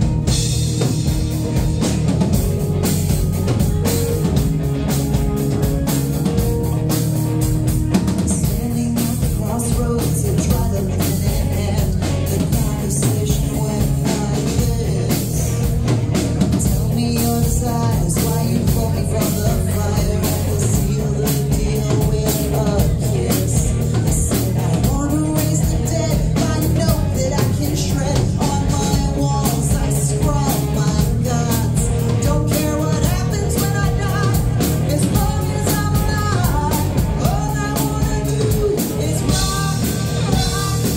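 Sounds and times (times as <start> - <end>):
drum kit: 0.0 - 40.9
electric guitar: 0.0 - 40.9
woman singing: 8.2 - 15.7, 16.6 - 40.9.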